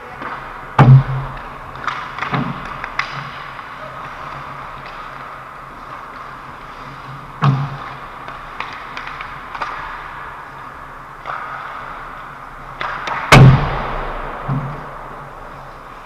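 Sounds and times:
knocks of puck and sticks: 0.0 - 16.0
skates hissing on ice: 3.2 - 13.2.

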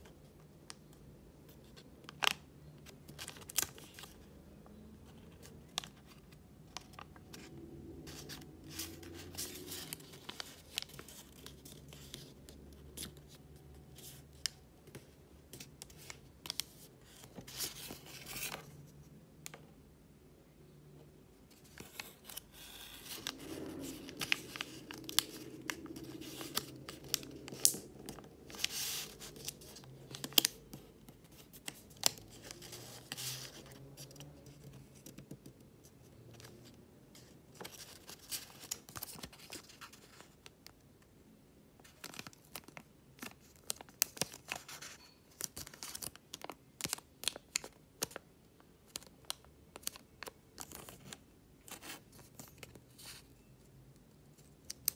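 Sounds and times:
paper rustling and crinkling: 8.1 - 13.4, 14.0 - 18.7, 21.5 - 35.5, 36.3 - 40.5, 41.8 - 48.2, 48.9 - 53.3.

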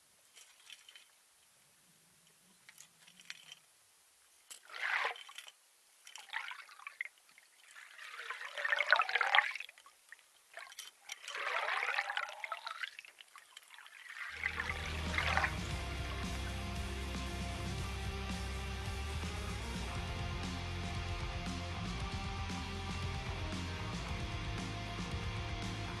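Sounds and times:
water trickling and gurgling: 4.4 - 16.5.

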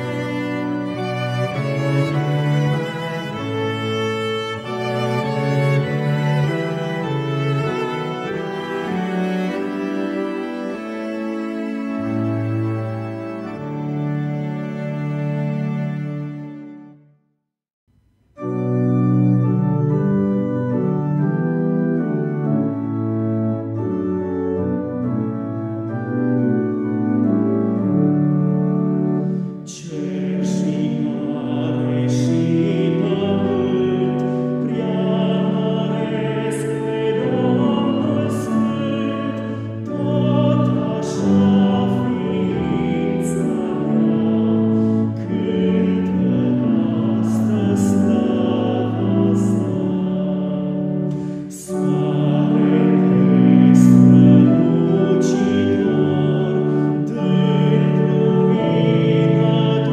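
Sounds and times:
church organ chords: 0.0 - 17.0, 18.3 - 59.9
man singing a hymn: 29.6 - 59.9.

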